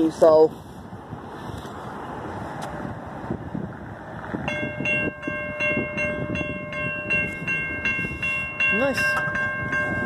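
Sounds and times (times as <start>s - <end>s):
electronic crossing bell dinging: 4.5s - 10.0s.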